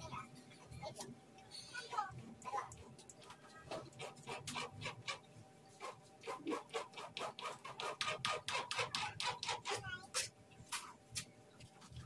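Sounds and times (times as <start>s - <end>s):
knife chopping on plastic board: 5.8s - 9.8s.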